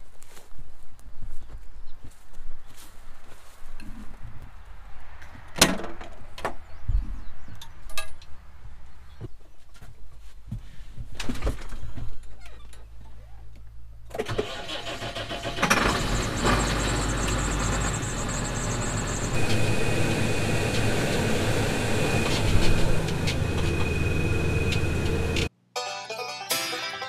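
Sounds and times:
tractor engine running: 14.0 - 25.5
steady high whine: 16.2 - 25.5.

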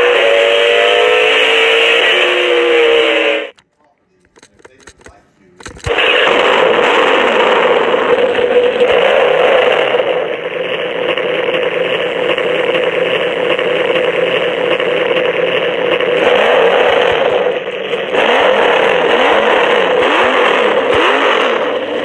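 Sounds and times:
tinny toy car engine sound: 0.0 - 3.6, 4.3 - 22.0.

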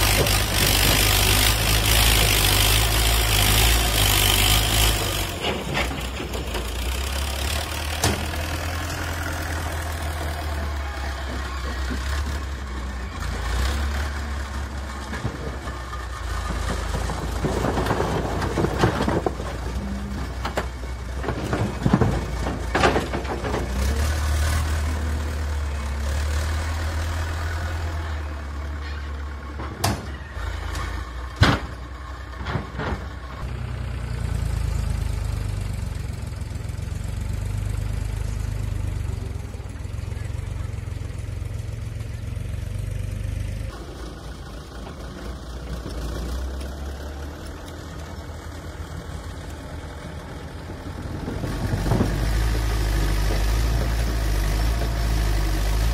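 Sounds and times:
diesel engine running: 0.0 - 55.9
concrete blocks clattering: 16.4 - 24.0.

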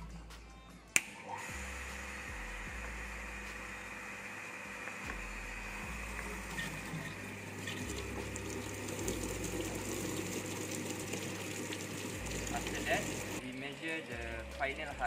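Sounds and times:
electric water pump humming: 1.0 - 15.0
water rushing through pipes: 6.3 - 14.4.

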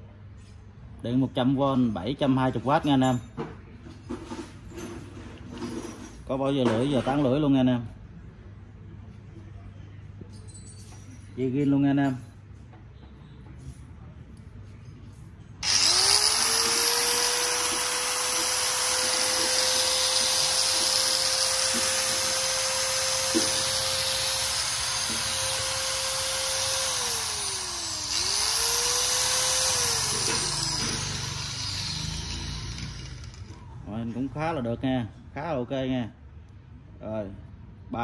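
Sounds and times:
angle grinder whining: 15.6 - 33.6.

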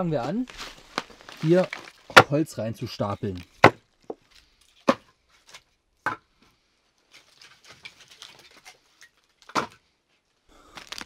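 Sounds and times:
faint rustling of wood chips: 0.0 - 5.8, 6.4 - 11.0
firewood knocking on wood: 3.6 - 4.2.

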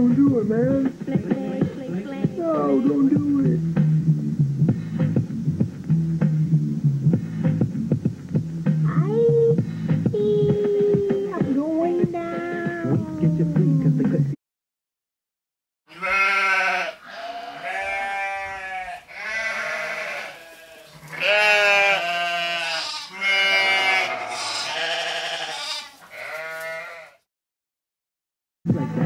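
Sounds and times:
quavering goat-like bleats: 1.4 - 3.2, 15.9 - 27.3.

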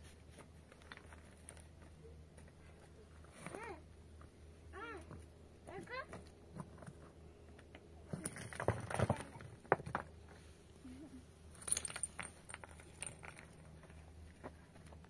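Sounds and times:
small objects clinking: 11.5 - 14.1.

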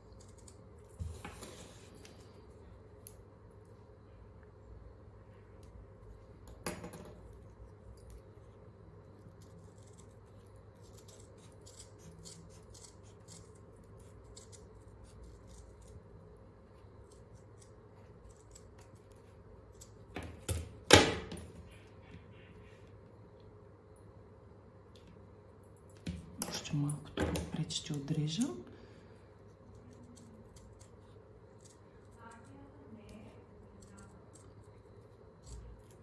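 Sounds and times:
scissors snipping felt: 10.8 - 16.0.

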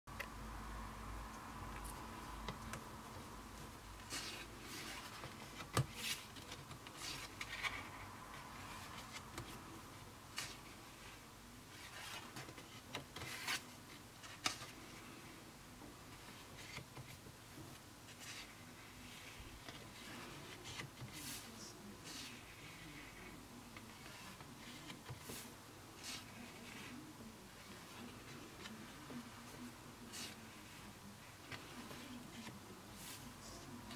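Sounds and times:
paper pages turning: 4.0 - 9.6, 11.7 - 15.2, 18.1 - 33.9.

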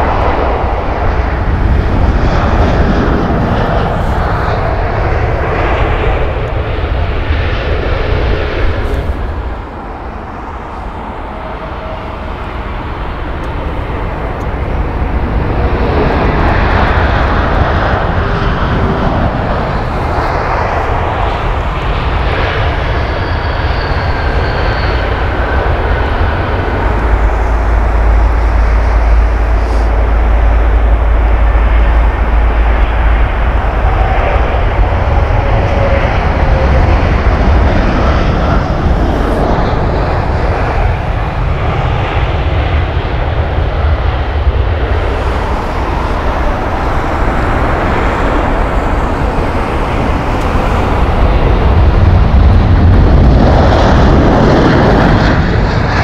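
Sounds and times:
jet engines rumbling: 0.0 - 56.0
faint whines sliding down: 18.8 - 41.6.

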